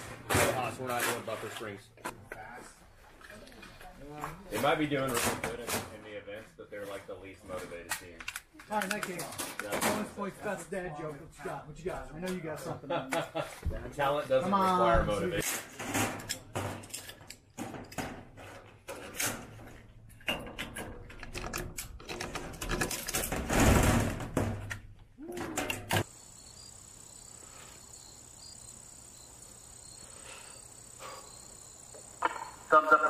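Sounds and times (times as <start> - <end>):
rifle parts clicking and clacking: 7.9 - 9.7
quiet outdoor hum: 25.0 - 33.0.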